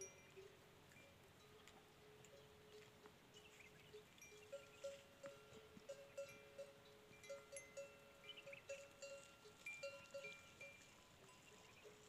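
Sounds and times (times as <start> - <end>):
livestock bells ringing: 0.0 - 2.8, 3.8 - 12.0.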